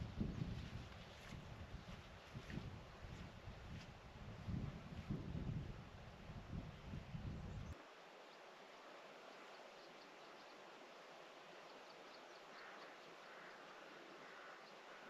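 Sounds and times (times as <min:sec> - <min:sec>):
wind rumble on microphone: 0:00.0 - 0:07.8
steady low hiss: 0:01.0 - 0:15.0.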